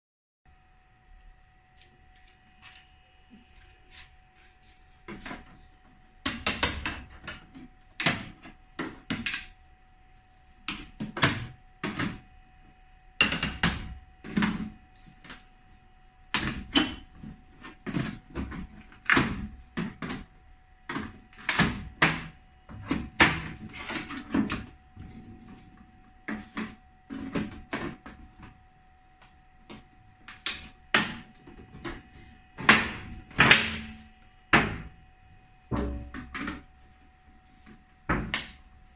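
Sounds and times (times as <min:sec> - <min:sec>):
metal panel knocking and rattling: 0:35.7 - 0:36.4.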